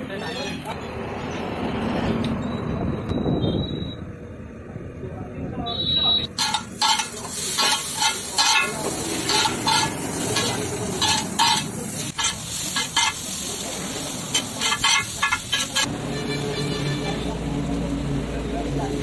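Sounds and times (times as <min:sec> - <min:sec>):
metal spatulas clanking on griddle: 0:06.3 - 0:13.3, 0:14.3 - 0:17.2
noodles sizzling: 0:06.3 - 0:15.9.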